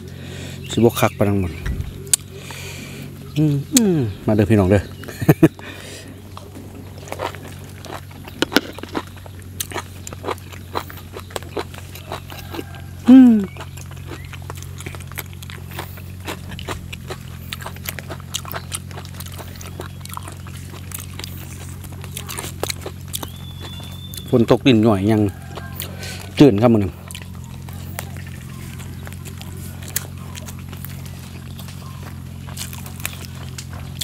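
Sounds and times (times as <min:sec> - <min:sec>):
wet chewing and mouth clicks: 0:01.0 - 0:04.0, 0:04.9 - 0:34.0
person grunting: 0:03.4 - 0:04.3, 0:13.1 - 0:13.5.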